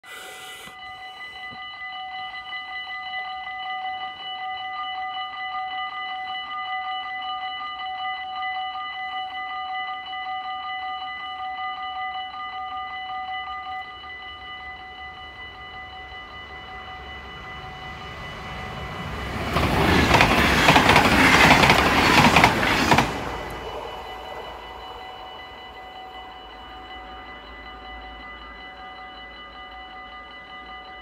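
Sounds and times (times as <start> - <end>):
level crossing warning bell: 0.6 - 31.0.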